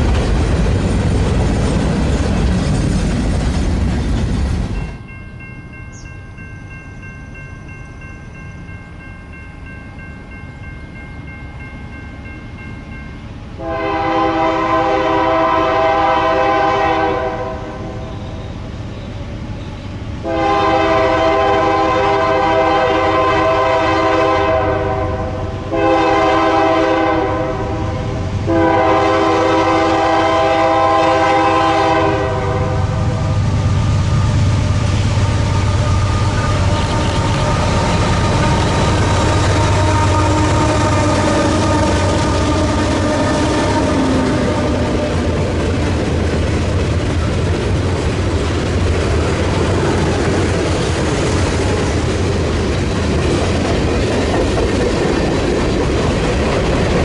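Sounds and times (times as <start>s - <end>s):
freight train rumbling past: 0.0s - 57.0s
locomotive air horn: 13.6s - 18.2s, 20.2s - 33.4s, 35.2s - 45.3s.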